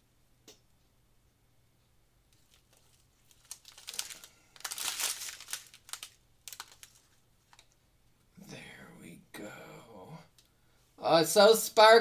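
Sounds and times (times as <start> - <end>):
small plastic bags crinkling: 2.3 - 7.8.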